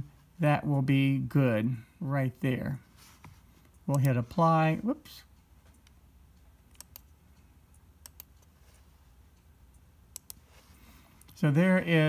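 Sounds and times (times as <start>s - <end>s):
computer mouse clicking: 3.6s - 4.2s, 6.7s - 8.6s, 9.7s - 10.5s.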